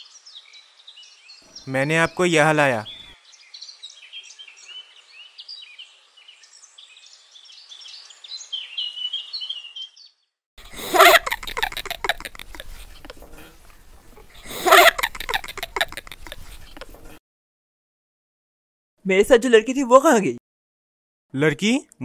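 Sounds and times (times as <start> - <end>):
small birds chirping: 0.0 - 17.2.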